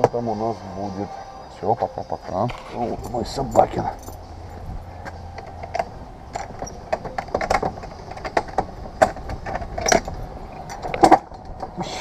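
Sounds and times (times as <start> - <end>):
wooden gate clicking and rattling: 5.0 - 11.8.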